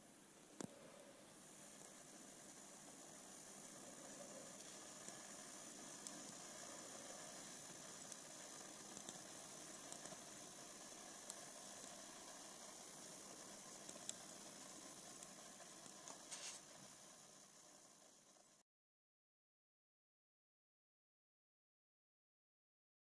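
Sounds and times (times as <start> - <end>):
faint hiss: 0.0 - 18.6
soft ticks: 0.6 - 0.8, 4.1 - 16.5.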